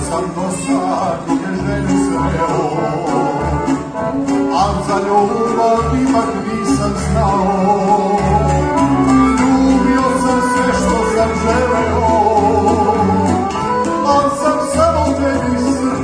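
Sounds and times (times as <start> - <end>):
accordion: 0.0 - 16.0
man singing into a microphone: 0.0 - 16.0
violin: 0.0 - 16.0.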